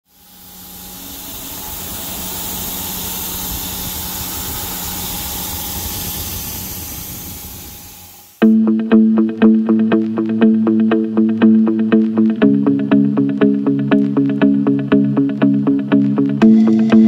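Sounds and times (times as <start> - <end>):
faint hum: 0.1 - 6.2, 16.4 - 17.0
milling machine cutting metal: 0.1 - 8.3
plucked guitar music: 8.4 - 17.0.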